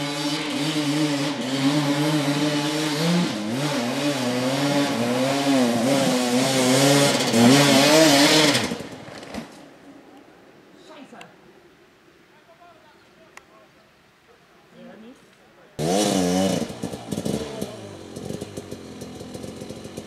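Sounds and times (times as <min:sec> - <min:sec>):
motorcycle engine revving: 0:00.0 - 0:09.5, 0:15.8 - 0:20.0.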